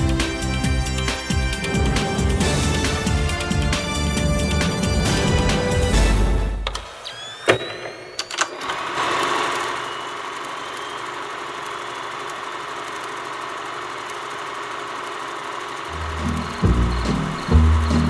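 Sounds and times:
film projector whirring: 0:00.0 - 0:18.0
film projector clicks: 0:07.5 - 0:15.9.

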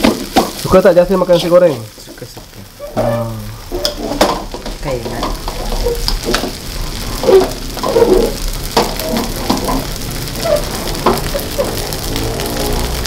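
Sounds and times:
rice sizzling in a wok: 0:00.0 - 0:13.0
metal spatula scraping wok: 0:02.7 - 0:13.0.

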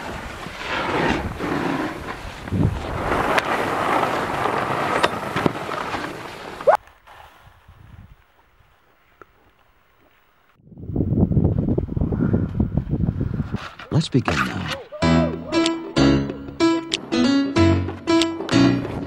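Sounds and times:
wind buffeting microphone: 0:00.0 - 0:05.4, 0:07.4 - 0:08.2, 0:10.6 - 0:13.8
snowboard clacks: 0:00.0 - 0:07.3
snowboard edges scraping snow: 0:00.0 - 0:09.2.

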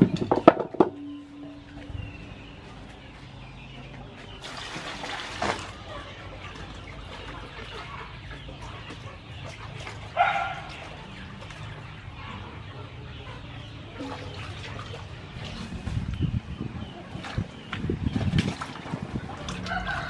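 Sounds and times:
chicken clucking: 0:05.5 - 0:18.1.

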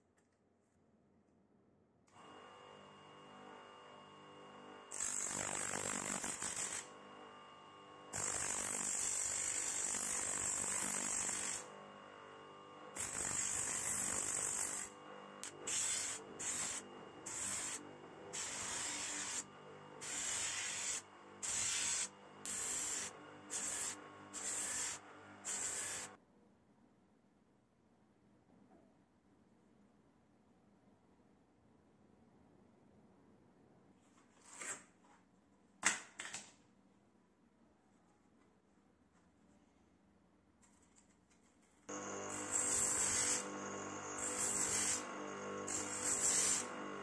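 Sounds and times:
electric motor humming: 0:02.2 - 0:26.2, 0:41.9 - 0:47.0
blade grinding on sanding disc: 0:08.2 - 0:11.9, 0:12.5 - 0:26.2, 0:41.9 - 0:47.0.

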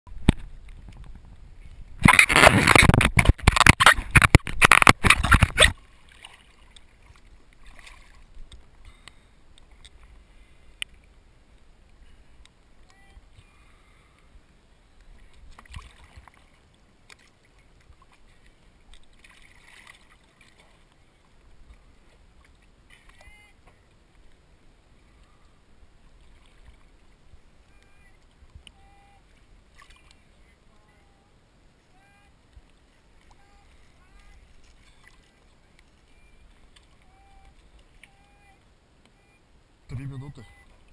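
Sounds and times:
water splashing against camera housing: 0:00.1 - 0:01.4, 0:02.0 - 0:10.0
sea water lapping: 0:00.1 - 0:40.9
small splashes: 0:02.0 - 0:10.2, 0:15.0 - 0:24.4, 0:25.2 - 0:27.1, 0:27.8 - 0:30.5, 0:32.6 - 0:38.6.

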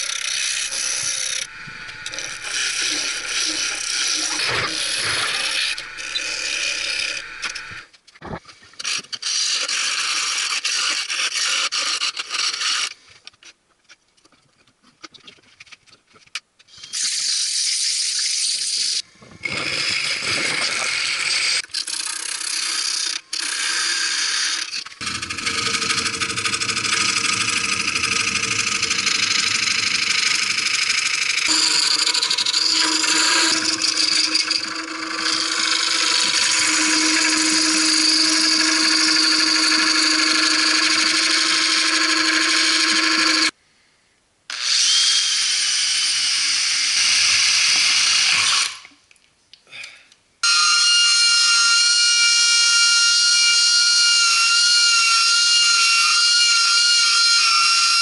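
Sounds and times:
gouge cutting wood: 0:00.0 - 0:07.8, 0:25.0 - 0:43.5
lathe motor hum: 0:00.0 - 0:07.8, 0:25.0 - 0:43.5
rotary tool whine: 0:00.0 - 0:07.9, 0:19.4 - 0:43.5, 0:50.4 - 0:58.0.

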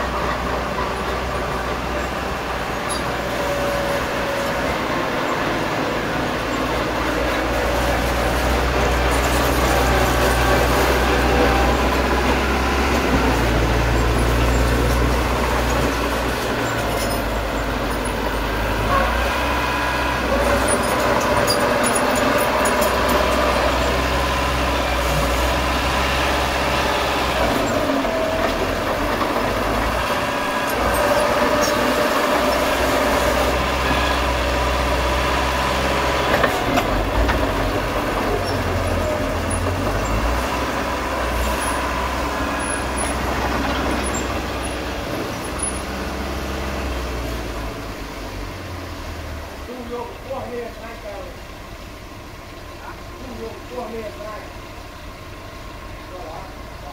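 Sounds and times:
steel tracks clinking: 0:00.0 - 0:19.6, 0:20.2 - 0:25.6
bulldozer diesel engine running: 0:00.0 - 0:56.9.

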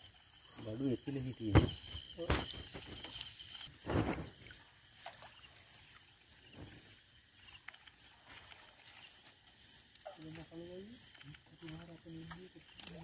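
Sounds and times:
insects chirping: 0:00.0 - 0:13.0
wet fishing net rustling and splashing: 0:07.6 - 0:09.9.

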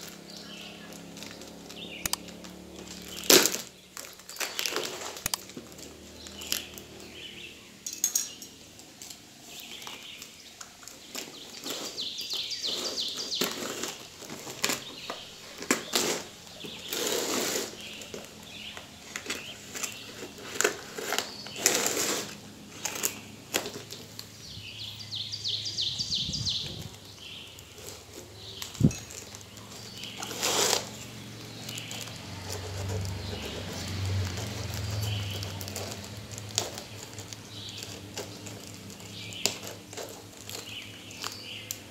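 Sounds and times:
packing tape crinkling and tearing: 0:00.0 - 0:07.4, 0:08.0 - 0:24.4, 0:26.5 - 0:41.9
sharp clicks: 0:01.7 - 0:05.5.

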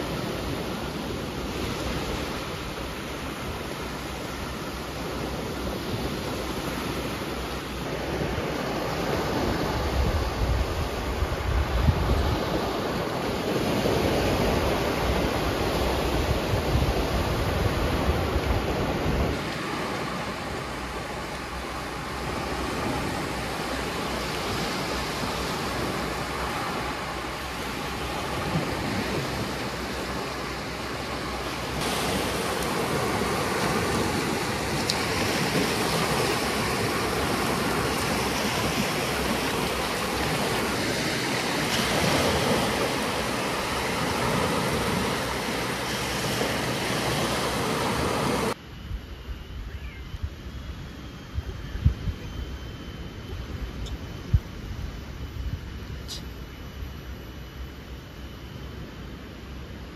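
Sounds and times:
small waves breaking on sand: 0:00.0 - 0:48.6.

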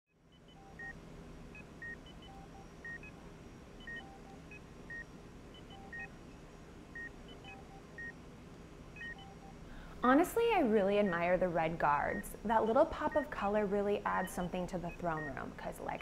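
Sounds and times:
steady low hum: 0:00.2 - 0:16.0
electronic console beeps: 0:00.4 - 0:01.0, 0:01.6 - 0:06.4, 0:07.0 - 0:08.2, 0:09.0 - 0:09.6, 0:14.1 - 0:15.6.

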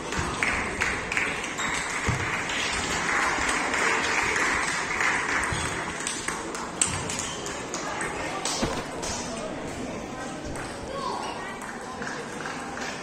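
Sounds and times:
applause: 0:00.1 - 0:06.7.

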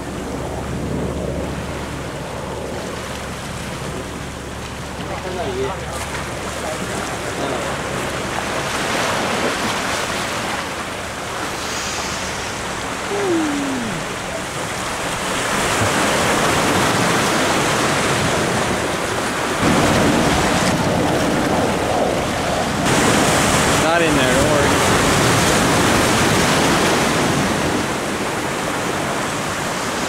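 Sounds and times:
surf breaking over rocks: 0:00.0 - 0:30.0
wind on microphone: 0:00.0 - 0:30.0.

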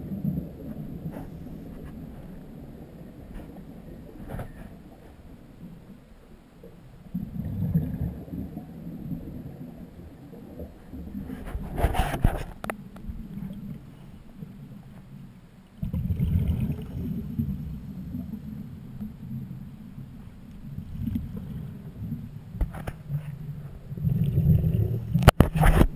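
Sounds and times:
underwater regulator bubbles: 0:07.1 - 0:13.9, 0:15.8 - 0:19.5, 0:20.5 - 0:25.9.

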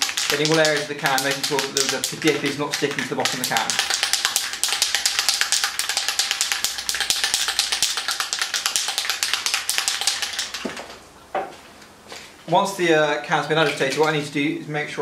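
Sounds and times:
spray can ball rattling: 0:00.0 - 0:11.0.

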